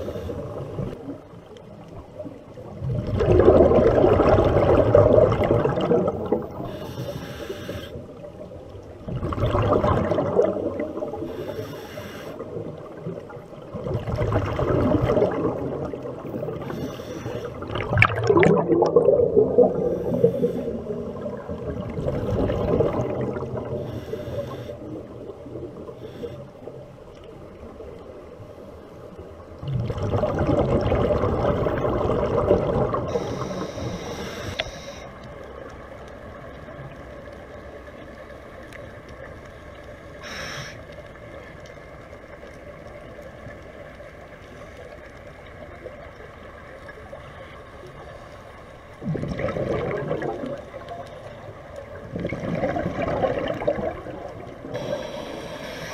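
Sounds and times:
diver breathing through regulator: 0:00.0 - 0:00.8, 0:06.6 - 0:08.1, 0:11.2 - 0:12.6, 0:16.6 - 0:17.7, 0:19.7 - 0:21.1, 0:23.7 - 0:25.0, 0:25.9 - 0:26.8, 0:33.1 - 0:35.2, 0:40.2 - 0:40.9, 0:54.7 - 0:55.9
exhaled bubbles gurgling: 0:00.0 - 0:28.3, 0:29.4 - 0:44.4, 0:45.0 - 0:55.9.

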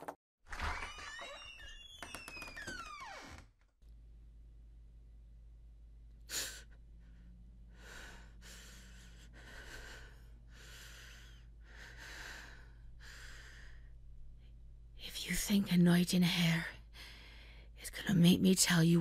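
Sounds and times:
steady low hum: 0:03.9 - 0:17.8
woman breathing heavily: 0:06.2 - 0:14.5, 0:16.8 - 0:17.8.

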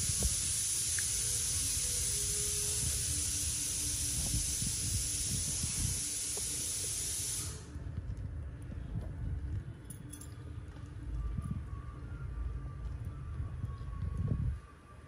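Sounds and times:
steady hiss: 0:00.0 - 0:07.9
low uneven rumble: 0:07.6 - 0:14.7.

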